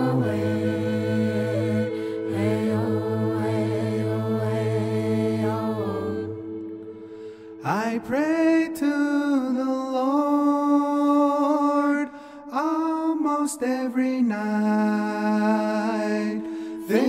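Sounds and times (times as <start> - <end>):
steady drone: 0.0 - 8.0
voice holding wordless notes: 0.0 - 17.0.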